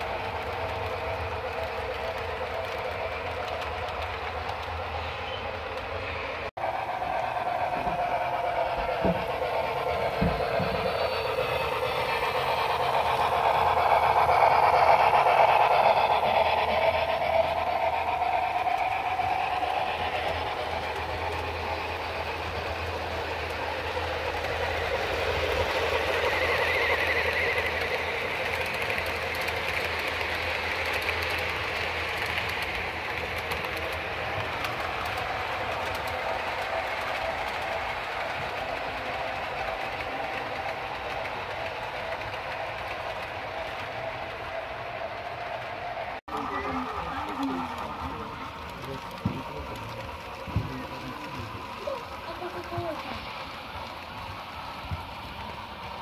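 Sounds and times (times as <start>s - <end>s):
model trains whirring on rails: 0.0s - 56.0s.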